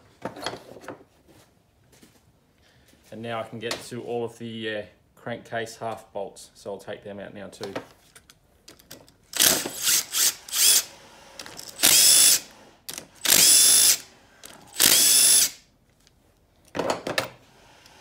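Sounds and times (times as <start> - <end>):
impact driver whining: 9.4 - 15.6.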